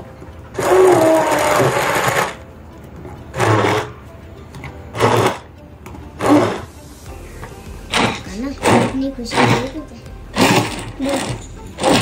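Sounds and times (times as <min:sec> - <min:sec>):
electric hand blender running: 0:00.6 - 0:02.4, 0:06.2 - 0:06.7, 0:07.9 - 0:12.0.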